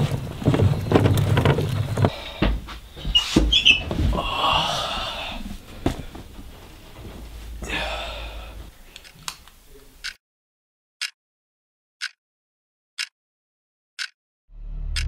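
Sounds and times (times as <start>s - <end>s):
person gasping on waking: 4.1s - 6.2s, 7.5s - 8.7s
clock ticking: 10.0s - 10.2s, 12.0s - 12.2s, 13.0s - 13.2s, 14.0s - 14.2s.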